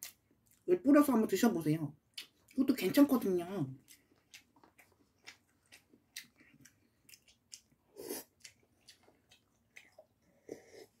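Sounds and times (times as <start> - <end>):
chewing: 2.1 - 2.6, 3.7 - 11.0.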